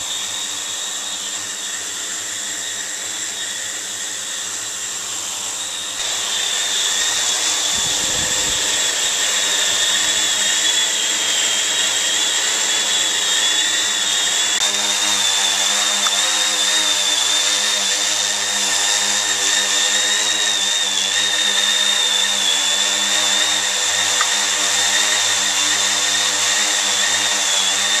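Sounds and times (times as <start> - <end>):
drone propellers whining: 0.0 - 28.0.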